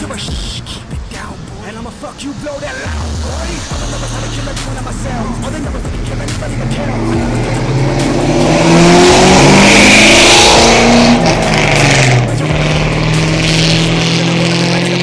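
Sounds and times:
car engine accelerating hard: 2.1s - 15.0s.

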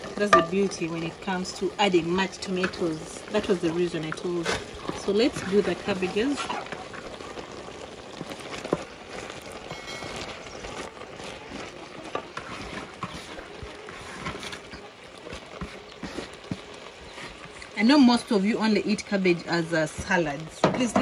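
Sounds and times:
cabbage leaves rustling: 0.0s - 20.6s.

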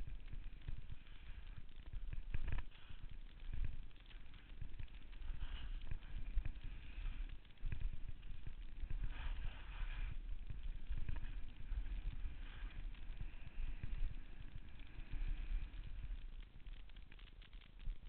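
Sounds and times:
skis scraping over snow: 2.4s - 15.8s.

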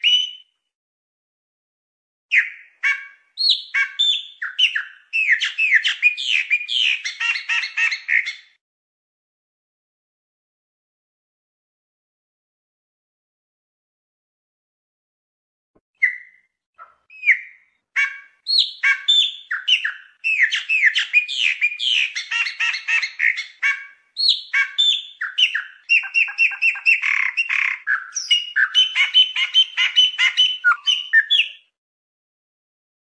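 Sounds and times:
blackbird singing: 0.0s - 0.5s, 2.3s - 8.6s, 16.0s - 31.7s.

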